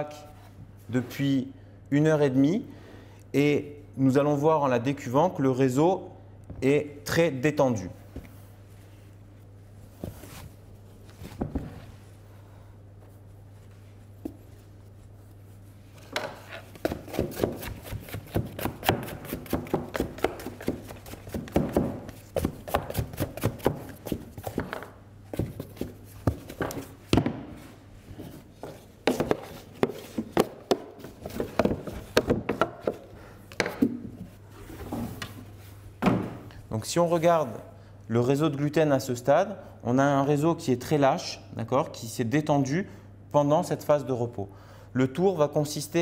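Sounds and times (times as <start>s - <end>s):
hands working dough in plastic tub: 13.6s - 35.6s.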